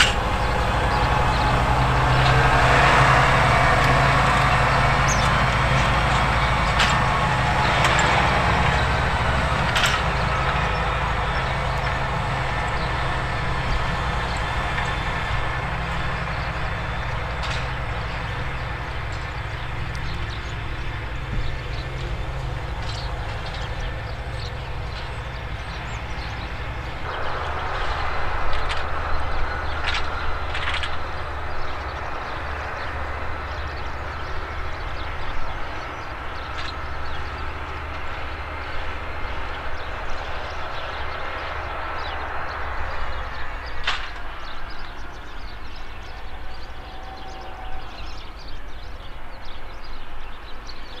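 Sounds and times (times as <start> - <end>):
tractor diesel engine running: 0.0 - 51.0.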